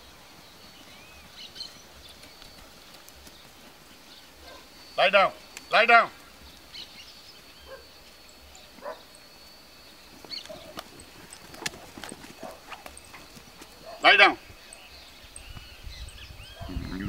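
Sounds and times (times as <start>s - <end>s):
animal footfalls on loose dirt: 0.0s - 7.9s, 9.9s - 15.8s.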